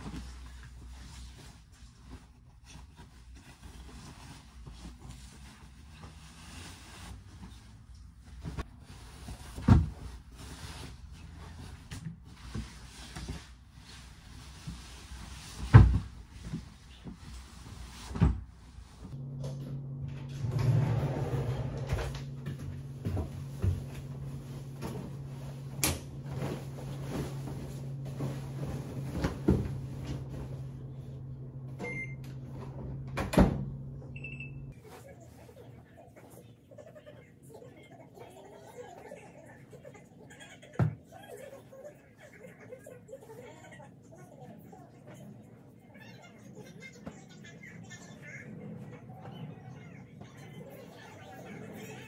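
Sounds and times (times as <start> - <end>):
steady low hum: 18.6 - 34.8
fabric rustling: 22.9 - 31.0
washing machine beep: 31.7 - 33.0, 34.1 - 34.8.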